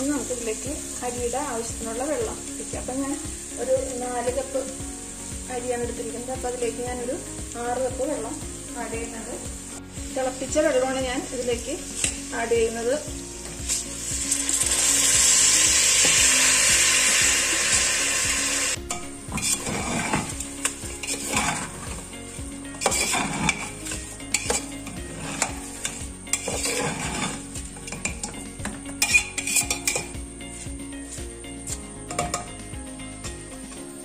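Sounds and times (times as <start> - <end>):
rice sizzling in hot oil: 0.0 - 34.0
spatula scraping metal pot: 19.3 - 22.0, 22.7 - 32.5
spatula clinking on metal: 22.8 - 28.4, 29.0 - 30.2, 32.1 - 32.5.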